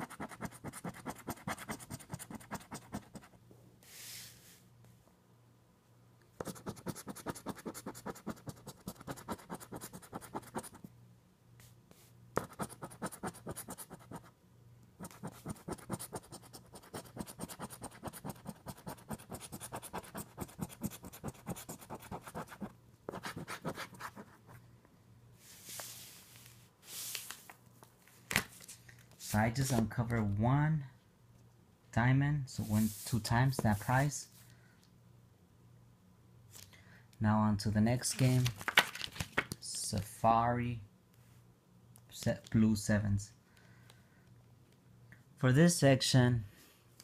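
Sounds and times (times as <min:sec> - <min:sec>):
lottery ticket being scratched: 0:06.4 - 0:10.8, 0:15.0 - 0:24.2.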